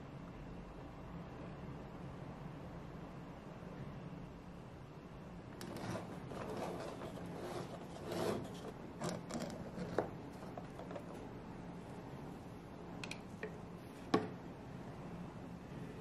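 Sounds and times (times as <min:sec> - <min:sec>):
metal spatulas scraping plastic turntable: 0:05.6 - 0:11.2.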